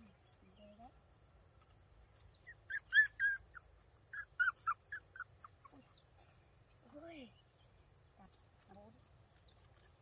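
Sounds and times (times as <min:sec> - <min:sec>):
puppies whimpering: 0:02.4 - 0:06.1.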